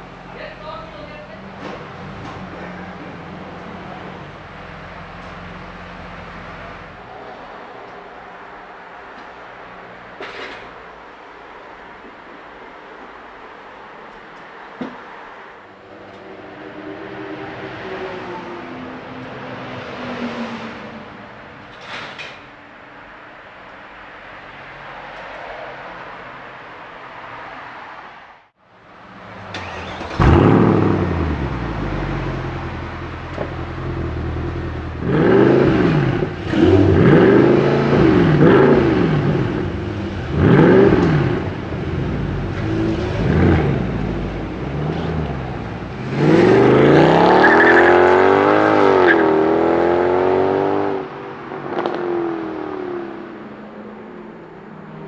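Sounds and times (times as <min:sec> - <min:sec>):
car engine starting and idling: 0:00.0 - 0:08.2, 0:29.0 - 0:48.9
full-throttle acceleration: 0:29.1 - 0:54.8
engine revving: 0:29.5 - 0:51.1.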